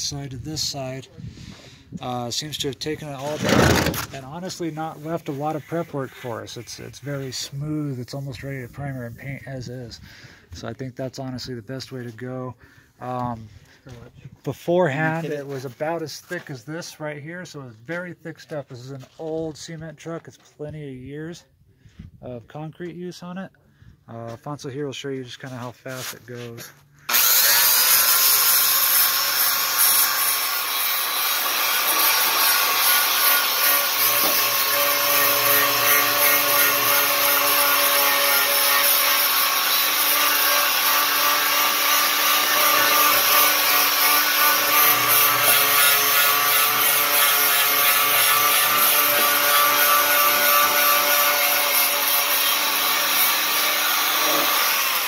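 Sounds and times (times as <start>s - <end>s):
angle grinder grinding concrete: 27.1s - 55.0s.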